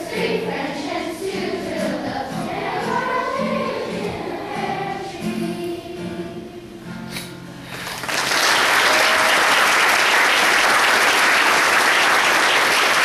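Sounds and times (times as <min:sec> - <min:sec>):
children's choir singing: 0:00.0 - 0:07.1
audience applauding: 0:07.7 - 0:13.0.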